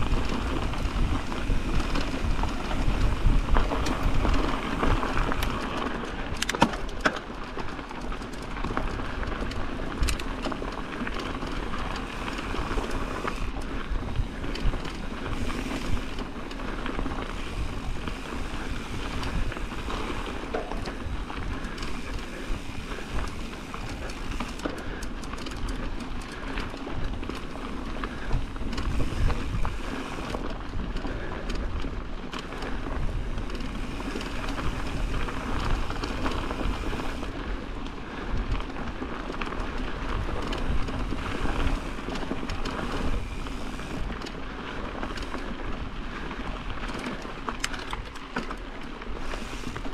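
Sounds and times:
bike clicks and rattles: 0:00.0 - 0:49.9
bike tyres on dirt: 0:00.0 - 0:49.9
wind rumble on microphone: 0:00.0 - 0:49.9.

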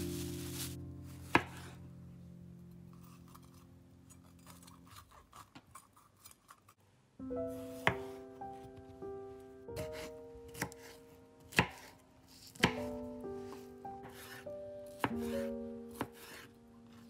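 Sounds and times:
soft background music: 0:00.0 - 0:05.1, 0:07.2 - 0:17.0
knife chopping on cutting board: 0:01.3 - 0:01.7, 0:09.8 - 0:12.9, 0:14.0 - 0:16.5.

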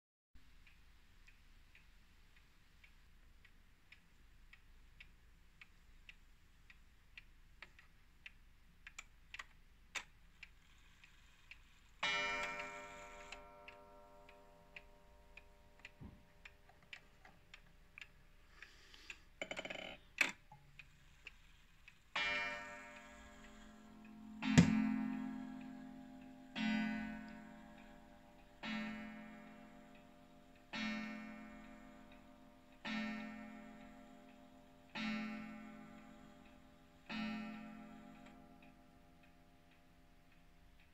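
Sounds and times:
pendulum clock ticking: 0:00.4 - 0:40.9
clock ringing strikes: 0:22.2 - 0:29.6.

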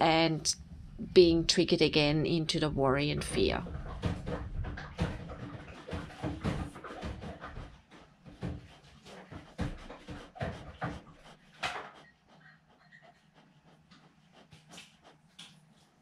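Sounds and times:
steady low hum: 0:00.0 - 0:04.4.

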